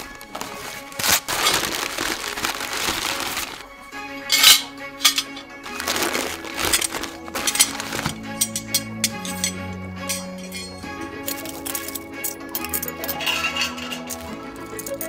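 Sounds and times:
newspaper rustling and crumpling: 0:00.0 - 0:03.7, 0:04.3 - 0:08.5
background music: 0:00.0 - 0:15.0
metal parts clinking: 0:04.3 - 0:15.0.

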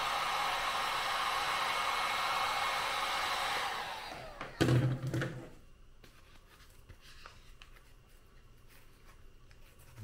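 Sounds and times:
heat gun blowing air: 0:00.0 - 0:04.6
heat gun winding down: 0:00.0 - 0:04.9.

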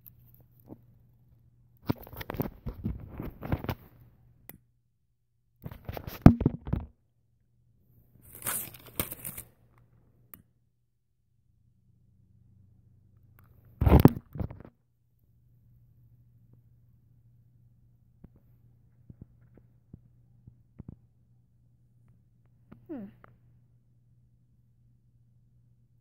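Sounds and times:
paper bag crinkling and tearing: 0:08.2 - 0:09.5.

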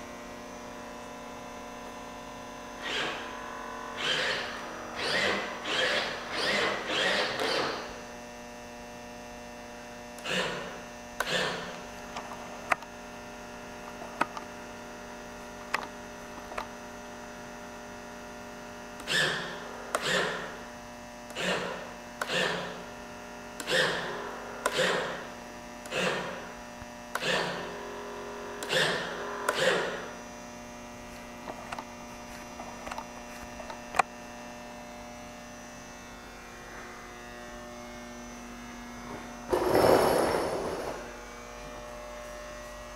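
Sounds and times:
steady electrical hum: 0:00.0 - 0:42.9
electric servo whines: 0:02.8 - 0:08.0, 0:10.2 - 0:11.8, 0:19.0 - 0:20.6, 0:21.3 - 0:22.9, 0:23.6 - 0:26.5, 0:27.1 - 0:30.2.

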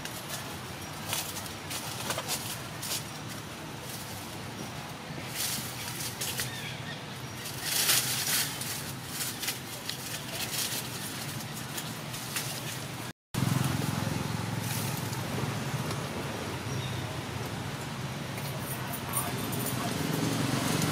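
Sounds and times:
dry leaves rustling and crackling: 0:00.0 - 0:20.9
low outdoor rumble: 0:00.0 - 0:20.9.

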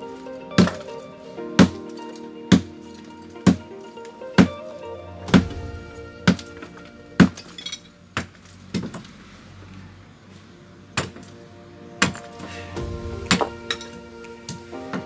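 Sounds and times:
background music: 0:00.0 - 0:08.9, 0:10.4 - 0:15.0
hammer striking concrete: 0:03.4 - 0:03.6, 0:13.3 - 0:14.0.

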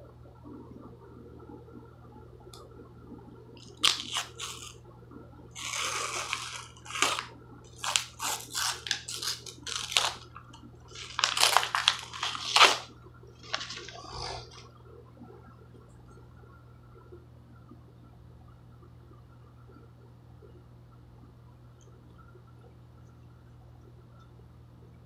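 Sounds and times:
paper label ripping: 0:03.6 - 0:04.8, 0:05.6 - 0:10.3, 0:10.9 - 0:14.6.

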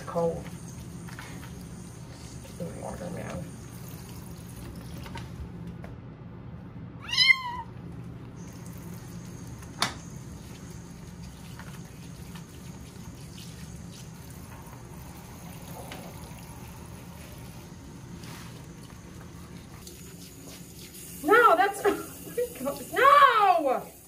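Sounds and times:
low background hum: 0:00.0 - 0:24.0
kitten meowing: 0:07.0 - 0:07.7.

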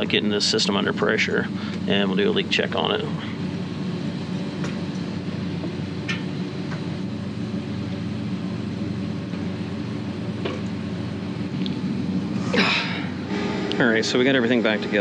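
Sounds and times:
low machinery hum: 0:00.0 - 0:15.0.

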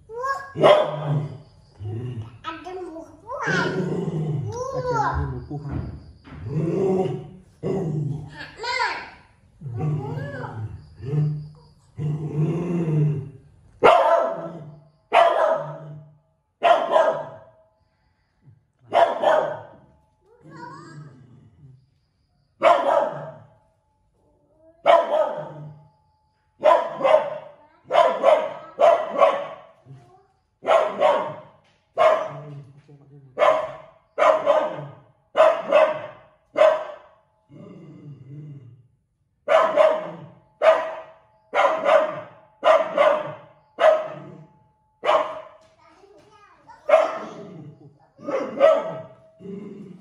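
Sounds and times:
dog barking: 0:00.5 - 0:01.4, 0:13.8 - 0:16.0, 0:16.6 - 0:17.5, 0:18.9 - 0:19.9, 0:22.6 - 0:23.5, 0:24.8 - 0:25.8, 0:26.6 - 0:29.9, 0:30.6 - 0:32.6, 0:33.4 - 0:37.2, 0:39.4 - 0:45.6, 0:46.8 - 0:47.5, 0:48.2 - 0:49.2
dog growling: 0:03.5 - 0:04.6, 0:09.6 - 0:13.4, 0:20.4 - 0:21.9, 0:37.4 - 0:39.0, 0:44.1 - 0:44.6, 0:47.1 - 0:50.0.

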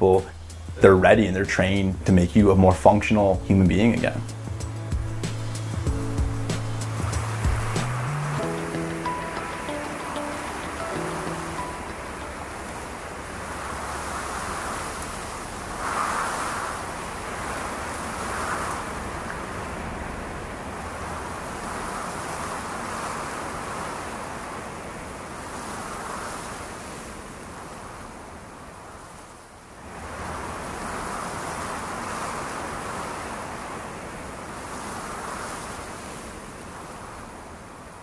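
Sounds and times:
rushing noise: 0:03.4 - 0:15.0.

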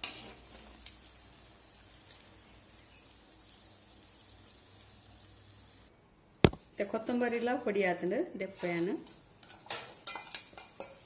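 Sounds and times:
hot oil sizzling: 0:00.0 - 0:05.9.

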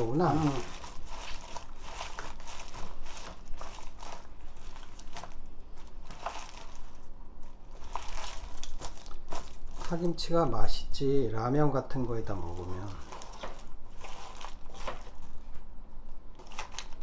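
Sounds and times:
hands squishing wet paste: 0:00.0 - 0:10.6.

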